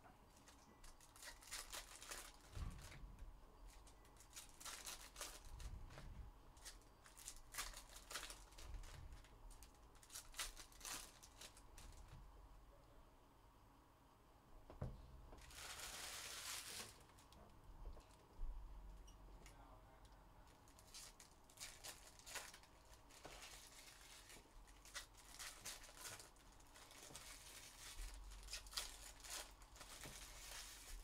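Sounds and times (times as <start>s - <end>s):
cards crinkling and clicking: 0.4s - 2.5s, 3.7s - 6.0s, 6.6s - 12.1s
wrapper tearing: 0.9s - 2.5s, 4.2s - 5.7s, 6.6s - 9.0s, 9.6s - 12.0s, 15.4s - 17.3s, 20.5s - 31.0s.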